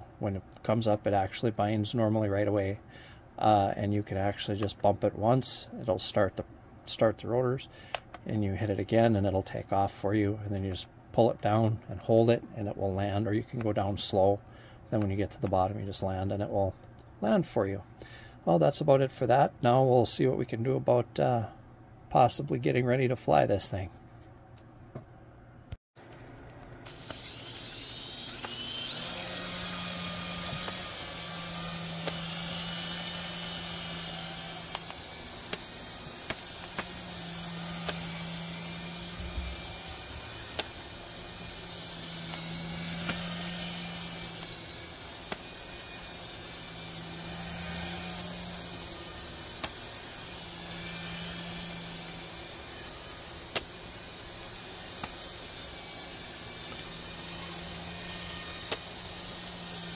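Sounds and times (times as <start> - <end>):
toy helicopter rotor whine: 26.8 - 59.9.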